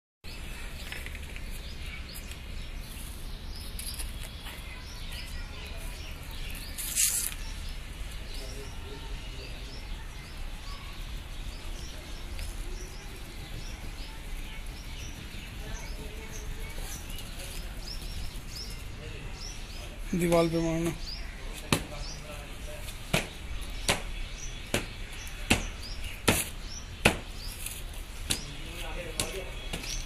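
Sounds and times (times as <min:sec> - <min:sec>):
small birds chirping: 0:00.2 - 0:30.0.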